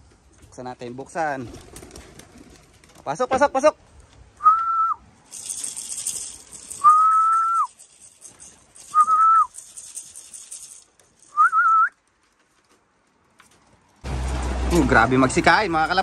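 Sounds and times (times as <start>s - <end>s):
person whistling: 4.4s - 5.0s, 6.8s - 7.7s, 8.9s - 9.5s, 11.3s - 12.0s
high rustling rattle: 5.2s - 14.9s.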